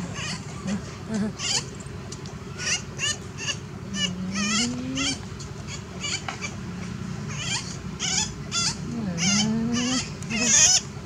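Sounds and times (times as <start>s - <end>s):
baby monkey squeaking: 0.0s - 1.7s, 2.5s - 6.6s, 7.3s - 10.9s.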